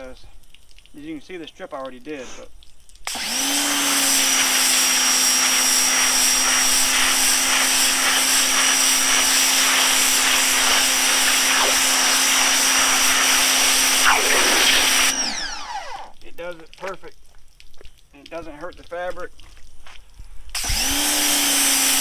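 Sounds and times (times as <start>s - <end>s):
water jet hissing on fabric: 2.1s - 16.2s, 20.5s - 22.0s
pressure washer motor humming: 3.1s - 16.2s, 20.6s - 22.0s.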